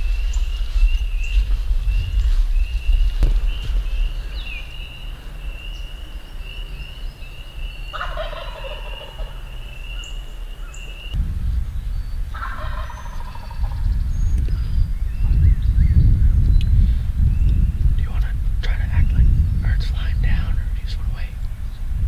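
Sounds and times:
wild turkey gobbling: 7.9 - 11.2, 12.3 - 13.8.

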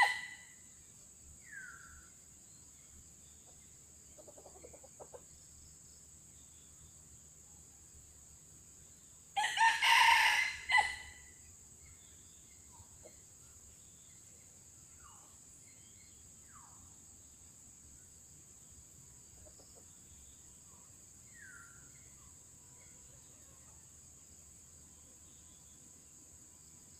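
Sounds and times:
rooster crowing: 0.0 - 0.4, 9.4 - 11.2
faint bird chirps: 0.0 - 8.2, 11.0 - 24.1
high insect drone: 0.0 - 26.9.

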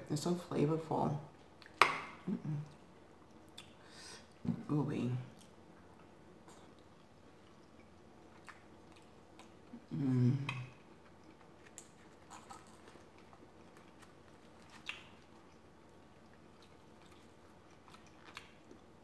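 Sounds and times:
light chewing: 1.3 - 4.4, 5.3 - 19.0
person humming: 9.8 - 10.7.

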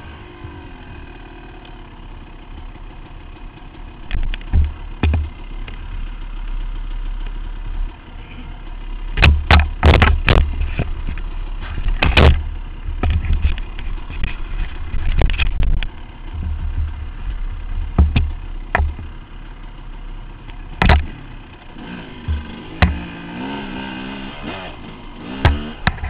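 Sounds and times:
dirt bike engine running: 0.0 - 26.0
bike knocking over bumps: 4.0 - 5.8, 9.1 - 19.3, 20.7 - 21.2, 22.2 - 23.3, 25.2 - 26.0.

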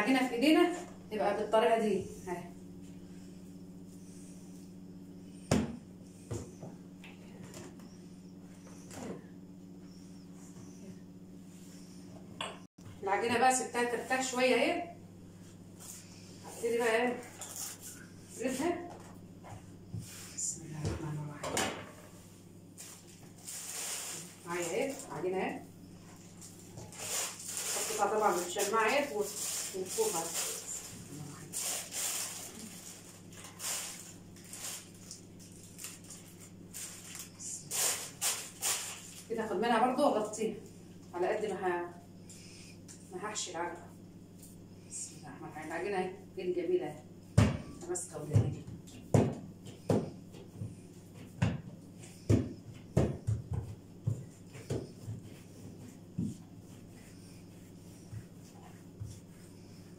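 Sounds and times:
low steady hum: 0.0 - 59.9
plastic bag crinkling: 26.2 - 39.3.

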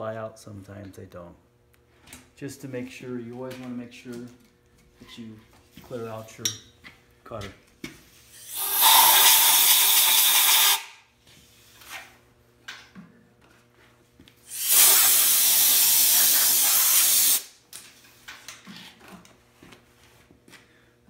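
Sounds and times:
compressed air blow gun hissing: 8.4 - 10.9, 14.5 - 17.5.

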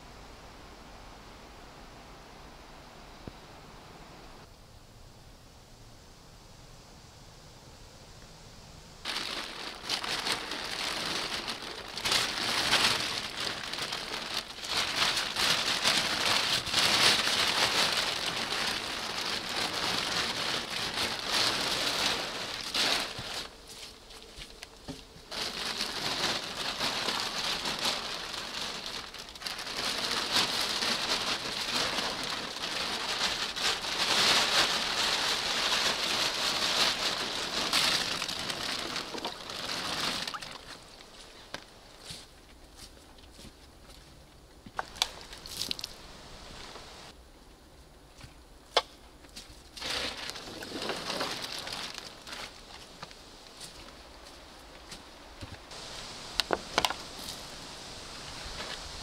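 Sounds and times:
wet plastic tarp rustling: 9.0 - 43.4, 44.8 - 47.2, 49.4 - 59.0.

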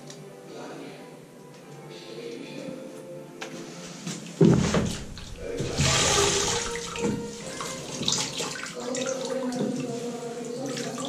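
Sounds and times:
water sloshing and splashing: 4.4 - 11.0
heavy splash in bucket: 4.5 - 9.4.

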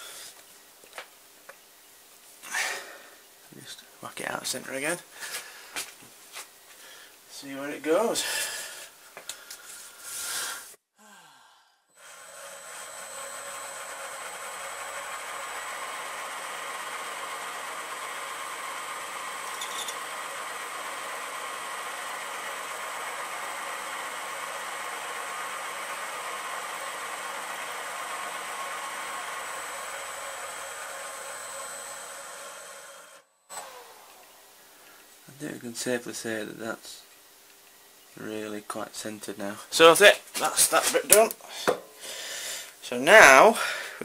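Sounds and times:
milling machine spindle motor whine: 12.0 - 34.6.

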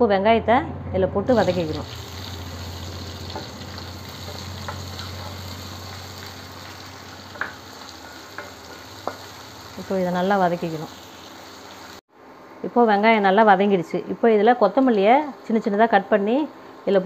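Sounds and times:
onions sizzling in a frying pan: 1.3 - 12.0.

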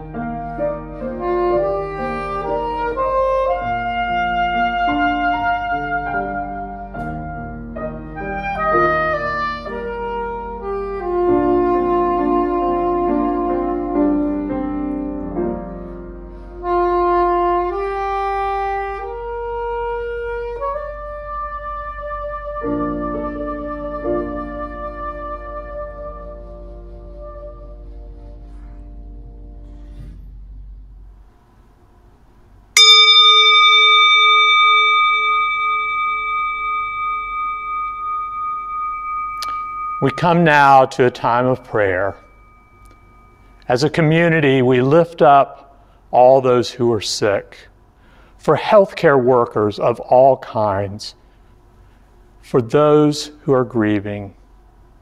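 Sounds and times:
grand piano: 0.0 - 18.0, 20.5 - 31.1, 32.8 - 44.9
soprano saxophone melody: 0.5 - 15.0, 16.3 - 28.9
metal singing bowl ringing: 32.8 - 44.8.

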